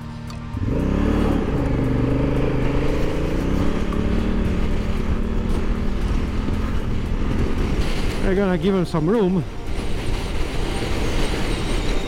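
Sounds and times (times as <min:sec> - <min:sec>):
motorcycle engine running: 0:00.0 - 0:08.1.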